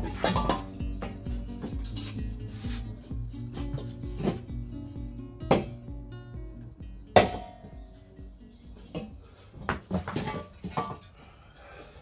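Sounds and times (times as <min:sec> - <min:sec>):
acoustic guitar music: 0:00.0 - 0:09.4.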